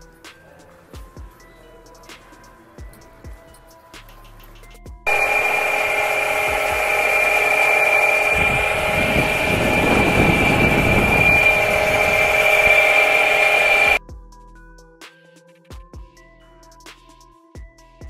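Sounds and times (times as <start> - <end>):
brick saw whining: 5.1 - 14.0.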